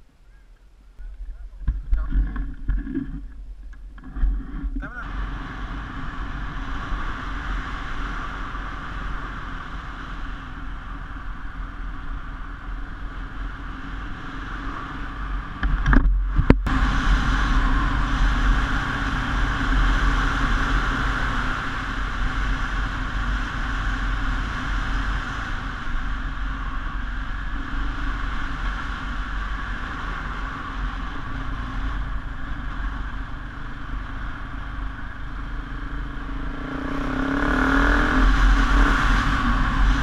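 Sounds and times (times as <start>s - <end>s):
motorcycle engine droning: 0.0s - 40.0s
wind rumble on microphone: 0.0s - 40.0s.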